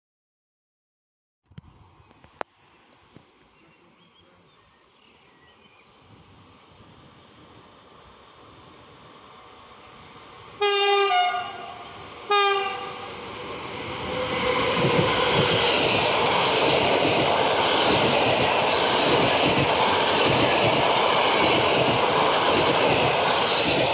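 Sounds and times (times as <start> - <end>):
train horn blasts: 10.6 - 13.1
train wheels rumbling on rails: 11.4 - 23.9.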